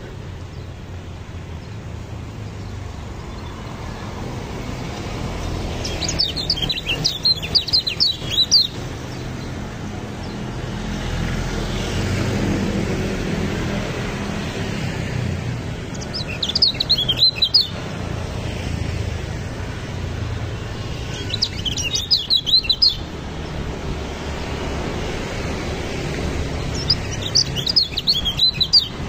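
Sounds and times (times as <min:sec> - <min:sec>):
bird twittering: 0:05.8 - 0:09.5, 0:15.9 - 0:17.8, 0:21.0 - 0:23.1, 0:26.6 - 0:29.0.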